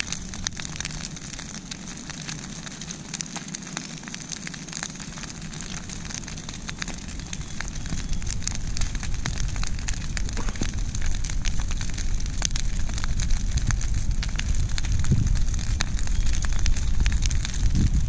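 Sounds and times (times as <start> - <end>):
brush fire crackling: 0.0 - 18.0
low rumble: 7.1 - 18.0.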